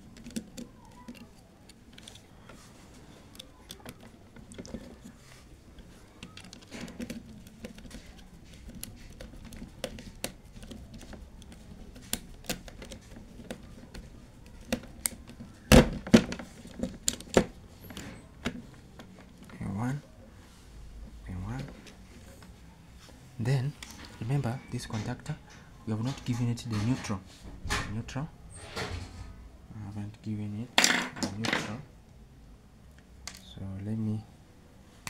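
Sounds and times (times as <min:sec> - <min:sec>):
screwdriver clicking on plastic terminal: 0:00.1 - 0:02.2, 0:05.8 - 0:15.4.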